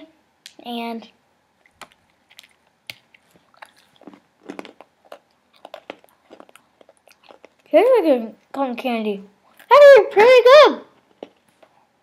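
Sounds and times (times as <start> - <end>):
cookie crunching while chewed: 1.6 - 7.8.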